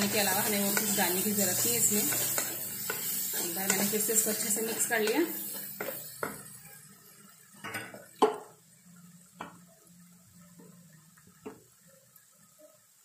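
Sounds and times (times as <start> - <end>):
wooden spatula knocking on pan: 7.8 - 8.5.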